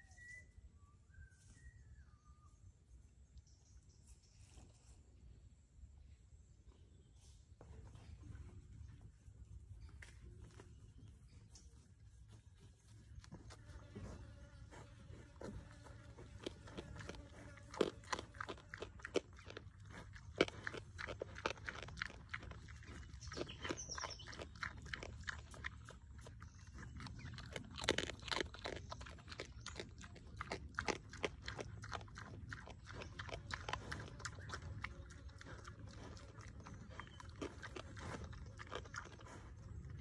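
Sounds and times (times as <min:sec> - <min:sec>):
pig chewing and crunching: 0:09.8 - 0:40.0.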